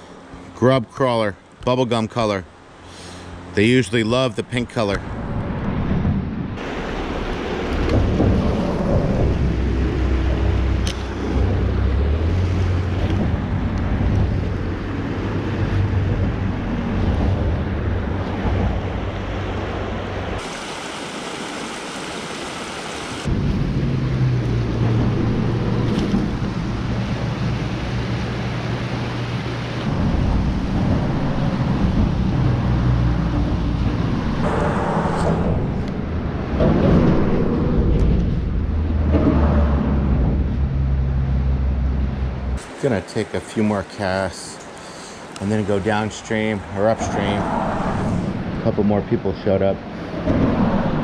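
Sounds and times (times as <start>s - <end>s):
deep water rumble: 5.1s - 20.5s, 23.1s - 42.8s, 44.9s - 51.0s
creek water rushing: 6.6s - 35.7s, 41.4s - 51.0s.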